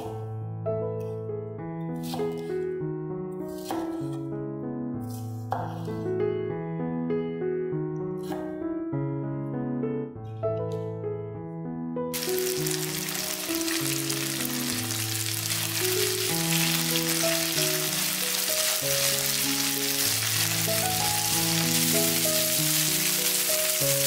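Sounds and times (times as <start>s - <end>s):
slow background music: 0.0s - 24.0s
vegetables sizzling in a frying pan: 12.2s - 24.0s.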